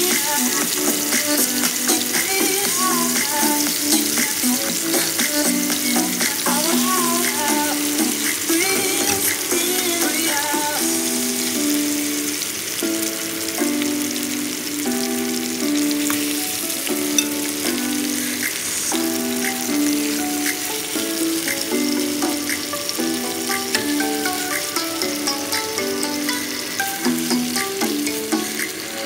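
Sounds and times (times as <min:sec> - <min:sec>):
food sizzling in a pan: 0:00.0 - 0:29.0
simple melody of held notes: 0:14.8 - 0:18.0.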